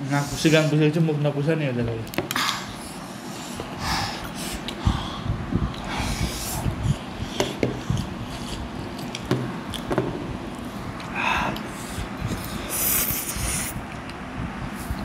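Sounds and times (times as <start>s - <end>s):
hissing breath: 11.1s - 13.8s.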